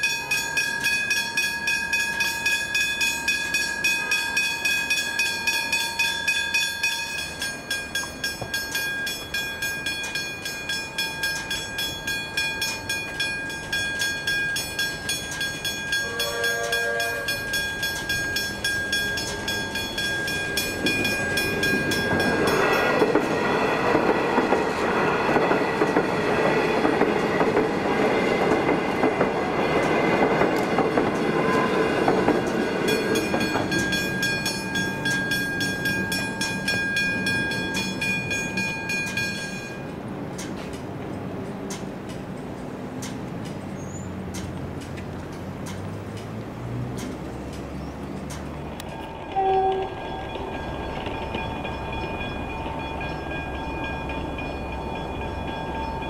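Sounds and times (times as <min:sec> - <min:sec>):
level crossing bells ringing: 0:00.0 - 0:24.8, 0:31.5 - 0:40.0, 0:48.8 - 0:56.0
electric train rumbling: 0:00.0 - 0:56.0
train horn blast: 0:16.0 - 0:17.6, 0:49.2 - 0:50.3.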